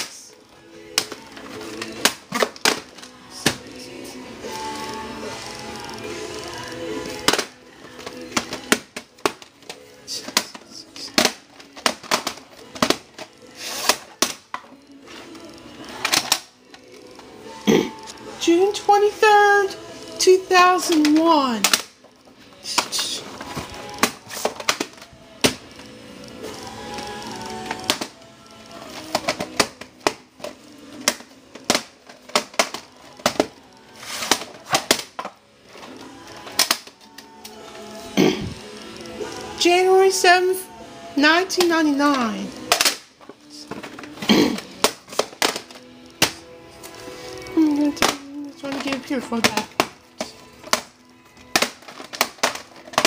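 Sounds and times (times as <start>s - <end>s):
plastic tape cases clicking and knocking: 0.9s - 3.6s, 7.2s - 14.8s, 16.0s - 16.9s, 20.8s - 22.0s, 22.8s - 25.7s, 27.7s - 28.2s, 28.9s - 35.9s, 36.5s - 37.3s, 42.6s - 46.4s, 47.8s - 53.0s.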